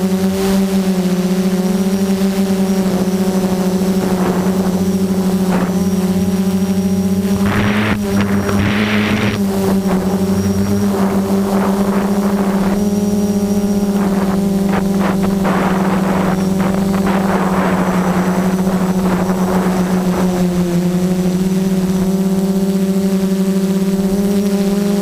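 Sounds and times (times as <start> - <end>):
quadcopter motors buzzing: 0.0 - 25.0
rushing air noise: 3.1 - 18.4.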